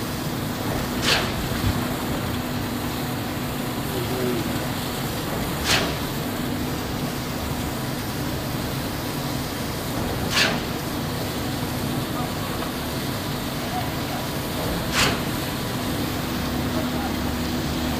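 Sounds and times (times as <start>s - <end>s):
concrete pump humming: 0.0s - 17.9s
short sharp pump sound: 5.6s - 6.0s, 10.3s - 10.7s, 14.8s - 15.4s.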